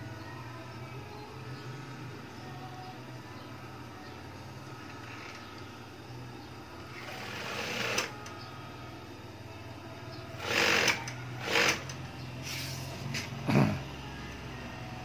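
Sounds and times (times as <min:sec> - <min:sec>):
steady low hum: 0:00.0 - 0:15.0
machine running: 0:06.7 - 0:09.2, 0:10.4 - 0:13.1.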